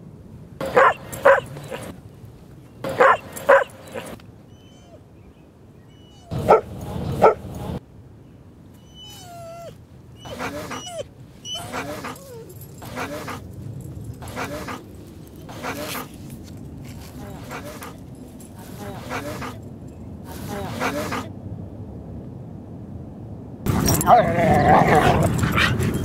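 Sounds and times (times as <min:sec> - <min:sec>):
dog barking: 0:00.6 - 0:01.9, 0:02.8 - 0:04.2, 0:06.2 - 0:07.8, 0:10.2 - 0:12.2, 0:18.8 - 0:19.6, 0:20.4 - 0:21.3
dog whining: 0:00.6 - 0:02.0, 0:02.9 - 0:05.0, 0:05.9 - 0:07.8, 0:08.8 - 0:13.5, 0:14.2 - 0:14.8, 0:15.5 - 0:16.1, 0:17.2 - 0:18.0, 0:18.6 - 0:19.6, 0:20.3 - 0:21.3, 0:23.7 - 0:26.0.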